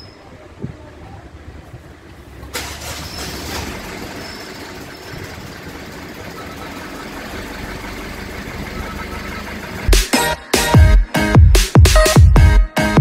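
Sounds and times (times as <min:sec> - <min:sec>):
engine cranking on starter: 0:02.3 - 0:10.2.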